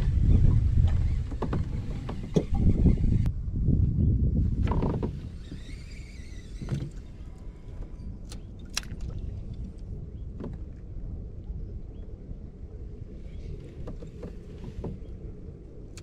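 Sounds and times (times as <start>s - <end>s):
wind buffeting microphone: 0.0s - 16.0s
water slapping kayak hull: 4.6s - 11.0s.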